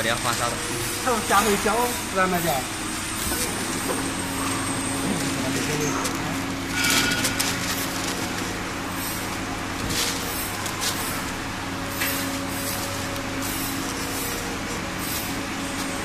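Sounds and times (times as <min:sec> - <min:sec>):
hydraulic pump motor humming: 0:00.0 - 0:16.0
paper sheet rustling: 0:04.9 - 0:14.5.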